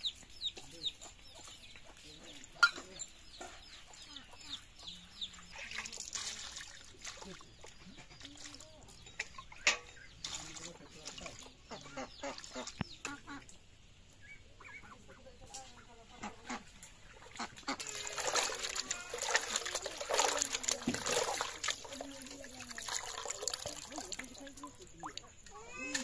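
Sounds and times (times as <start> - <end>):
water splashing in metal pot: 16.9 - 26.0.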